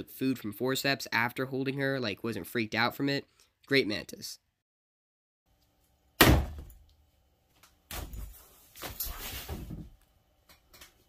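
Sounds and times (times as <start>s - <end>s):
sharp thump: 6.2s - 6.7s.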